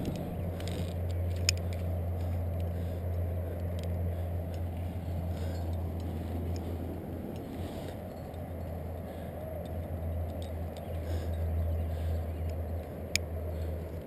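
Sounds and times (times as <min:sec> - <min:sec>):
metallic clicks of carabiners: 0:00.0 - 0:04.7
low rumble and hiss: 0:00.0 - 0:14.0.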